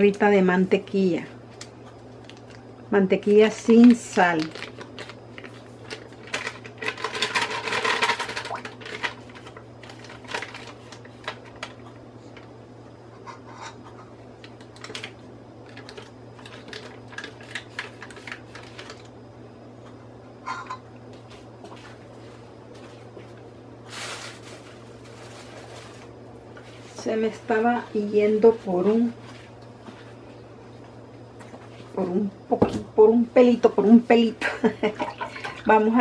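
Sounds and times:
steady low hum: 0:00.0 - 0:36.0
wrapper rustling: 0:01.5 - 0:02.6, 0:03.6 - 0:11.8, 0:14.5 - 0:19.1, 0:23.8 - 0:27.0.

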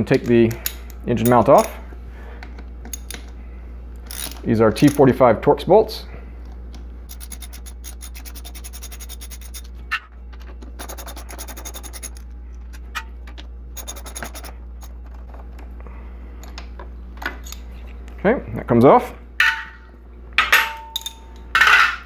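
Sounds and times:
steady low hum: 0:00.0 - 0:22.0
hand ratchet clicking: 0:07.1 - 0:09.7, 0:10.8 - 0:12.2, 0:13.8 - 0:14.9.

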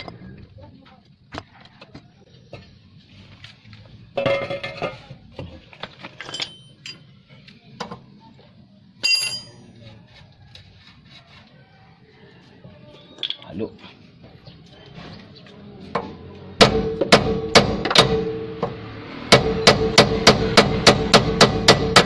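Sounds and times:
metal tools clinking: 0:05.9 - 0:07.2, 0:09.0 - 0:09.7
loud ringing clinks: 0:06.2 - 0:07.1, 0:09.0 - 0:09.6.

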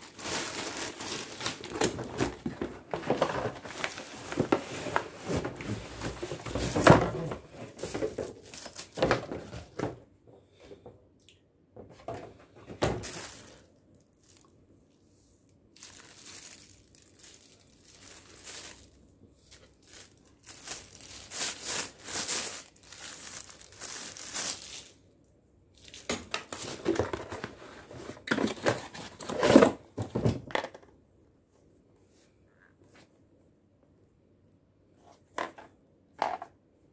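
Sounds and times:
packaging rustling: 0:00.0 - 0:09.8, 0:12.8 - 0:14.5, 0:15.8 - 0:25.0.

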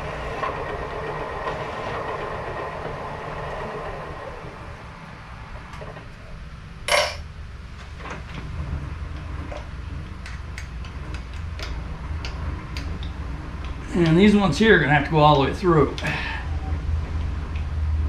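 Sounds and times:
low machine hum: 0:00.0 - 0:18.0
metal tools clinking: 0:06.9 - 0:07.2.

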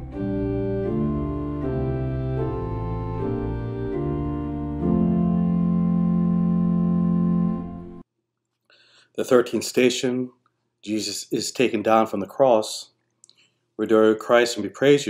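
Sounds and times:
organ chords: 0:00.0 - 0:08.0.

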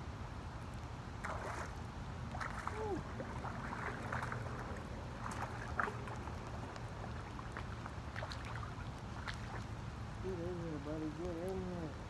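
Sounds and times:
wind rumbling on microphone: 0:00.7 - 0:12.0.

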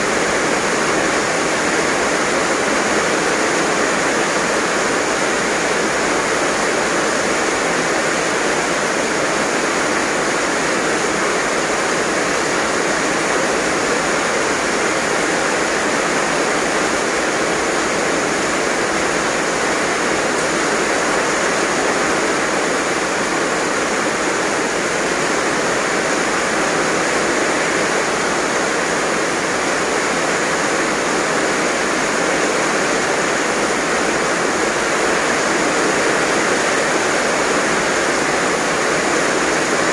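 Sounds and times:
heavy rain pouring: 0:00.0 - 0:39.9.

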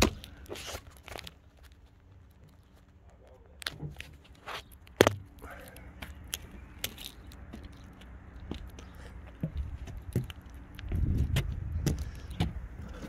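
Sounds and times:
light knocks scrapes and crunches: 0:00.0 - 0:13.0
footsteps on boat deck: 0:03.7 - 0:13.0.

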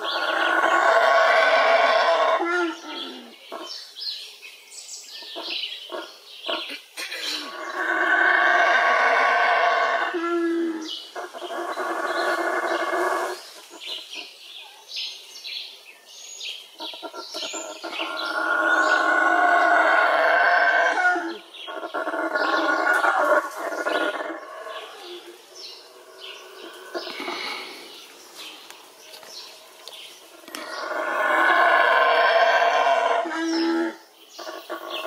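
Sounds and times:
howler monkey howling: 0:00.0 - 0:03.3, 0:07.5 - 0:13.4, 0:17.4 - 0:27.8, 0:30.4 - 0:35.0
birds chirping: 0:00.0 - 0:35.0.

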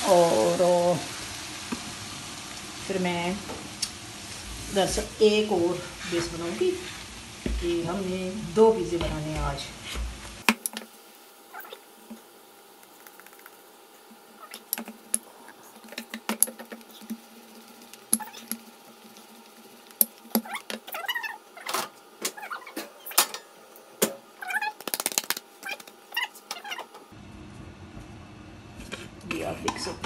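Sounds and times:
wavering high-pitched sounds: 0:14.4 - 0:23.2.

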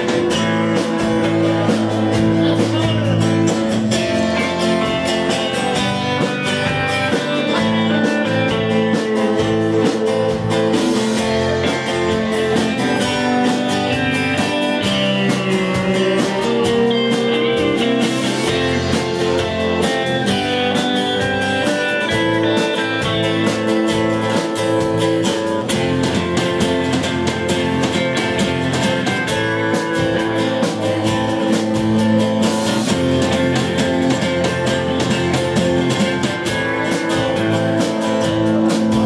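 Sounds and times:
drums: 0:00.0 - 0:39.0
electric guitar: 0:00.0 - 0:39.0
keyboard: 0:00.0 - 0:39.0
strummed acoustic guitar: 0:00.0 - 0:39.0.

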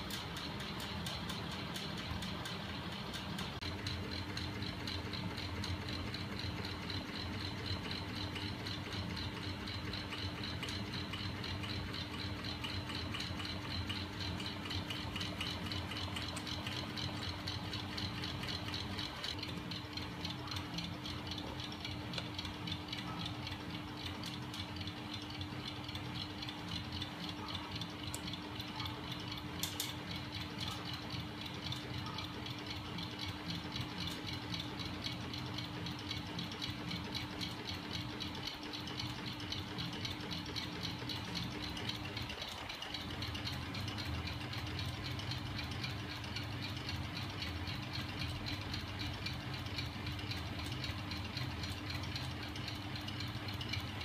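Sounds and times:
rattling and clicking linkages: 0:25.8 - 0:35.0.

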